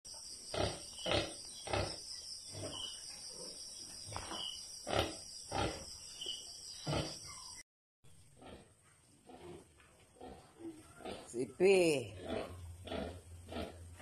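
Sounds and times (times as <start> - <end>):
sow grunting: 6.8 - 7.4, 10.2 - 14.0.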